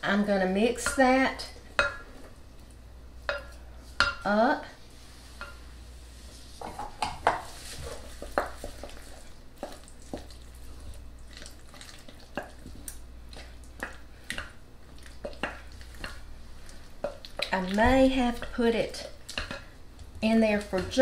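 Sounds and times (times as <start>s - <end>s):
wooden spoon stirring thick mixture: 6.6s - 21.0s.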